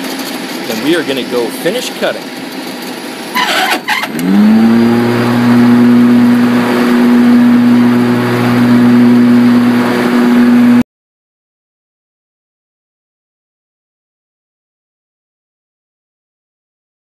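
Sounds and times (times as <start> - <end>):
electric motor humming: 3.6 - 10.8.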